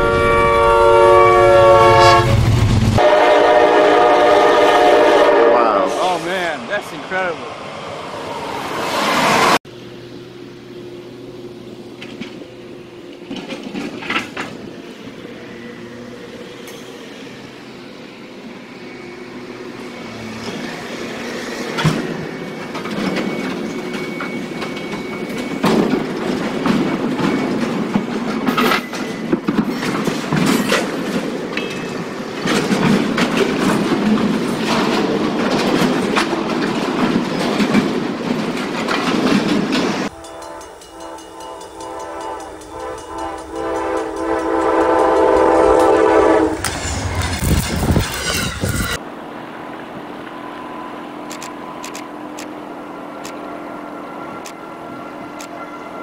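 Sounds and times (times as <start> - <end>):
train cars rumbling and grinding: 0.0 - 56.0
high metal squeal: 40.1 - 49.0, 53.4 - 56.0.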